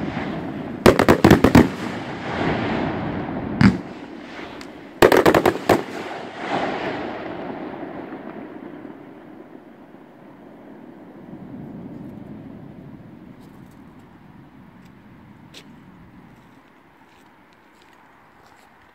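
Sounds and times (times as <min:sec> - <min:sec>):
fireworks bangs: 0:00.0 - 0:09.7.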